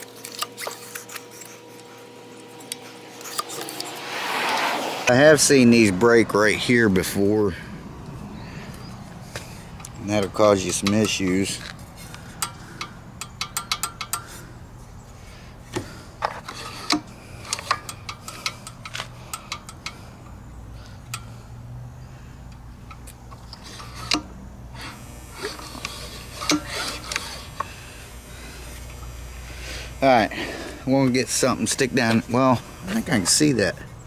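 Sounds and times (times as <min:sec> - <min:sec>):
small metal parts clicking: 0:09.8 - 0:14.4, 0:16.2 - 0:21.4.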